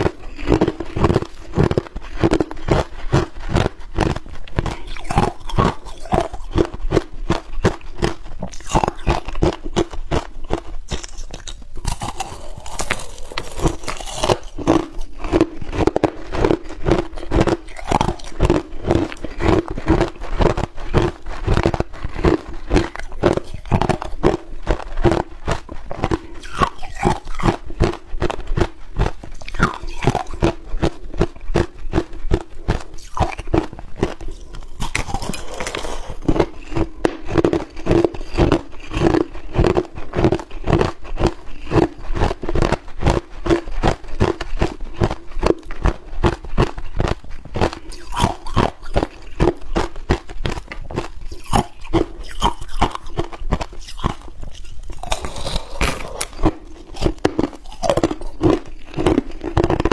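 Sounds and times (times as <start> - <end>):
ice crunching in mouth: 0.0 - 59.9.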